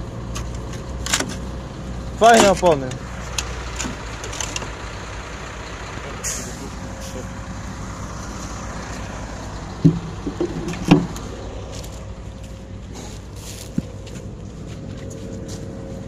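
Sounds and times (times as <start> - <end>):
diesel engine idling: 0.0 - 16.0
loud thumps: 9.8 - 11.2.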